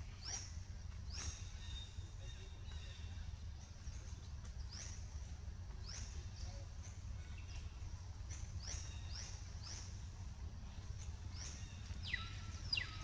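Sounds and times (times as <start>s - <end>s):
low steady rumble: 0.0s - 13.0s
birds chirping: 7.2s - 13.0s.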